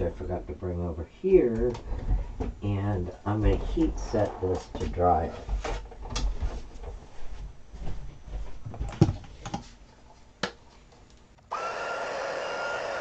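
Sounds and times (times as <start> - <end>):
knocks and clicks of handling: 4.5 - 7.1
heat tool whirring: 11.4 - 13.0.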